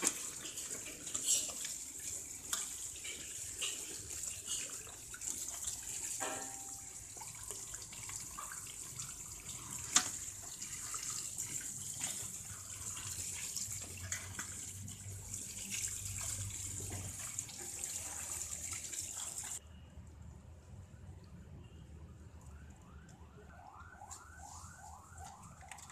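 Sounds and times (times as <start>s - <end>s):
hose water splashing into pot: 0.0s - 19.6s, 22.9s - 25.9s.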